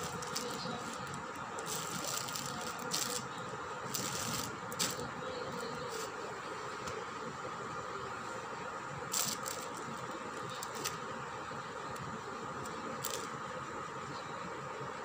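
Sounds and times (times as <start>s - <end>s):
steady hum and hiss: 0.0s - 15.0s.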